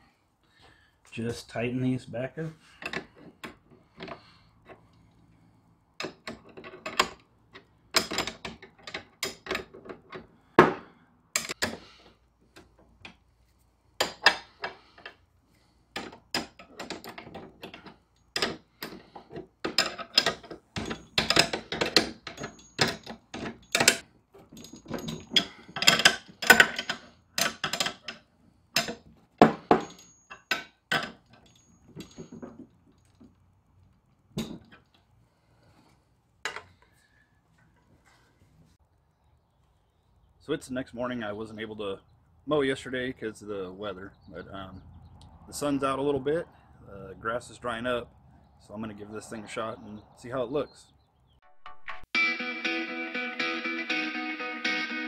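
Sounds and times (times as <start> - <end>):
wrench clicking on metal bolts: 6.0 - 10.3, 16.0 - 32.6.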